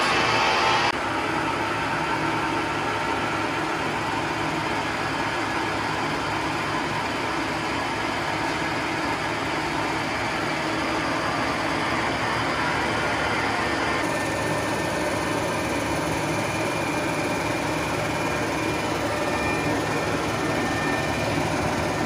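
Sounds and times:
lathe running: 9.2 - 22.0.

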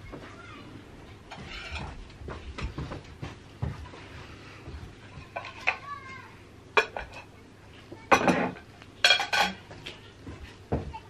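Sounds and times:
plates and cutlery clattering: 1.3 - 2.0, 5.2 - 5.8, 6.8 - 7.3, 8.1 - 10.0.

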